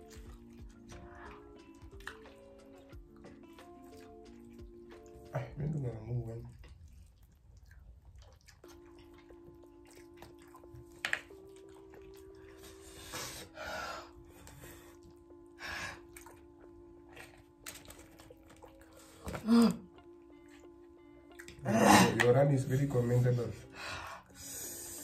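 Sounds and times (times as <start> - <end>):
quiet background music: 0.0 - 25.0
hissing breaths through lips: 12.4 - 16.1, 23.6 - 25.0.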